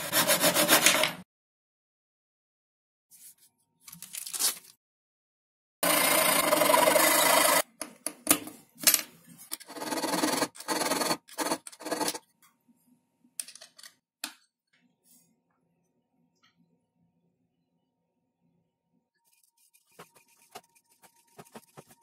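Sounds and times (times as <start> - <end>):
file scraping metal: 0.0 - 1.2, 9.6 - 12.2, 19.3 - 22.0.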